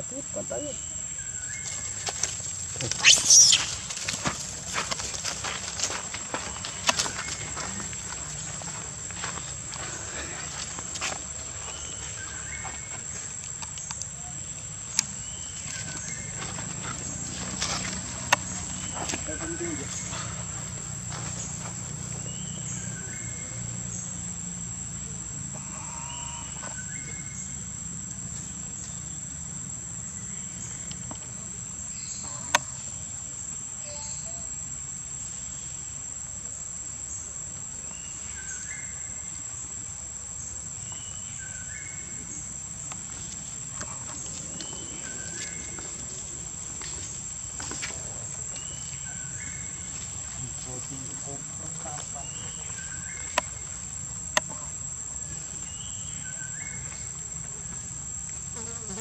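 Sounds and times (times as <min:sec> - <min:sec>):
insect chirps: 0:00.0 - 0:59.0
high-pitched insect drone: 0:33.8 - 0:35.0.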